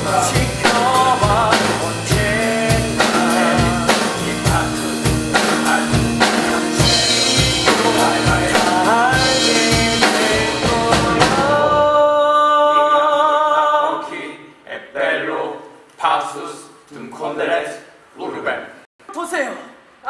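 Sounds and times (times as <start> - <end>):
live band playing: 0.0 - 12.2
drum kit beat: 0.0 - 12.4
man singing: 0.0 - 14.1.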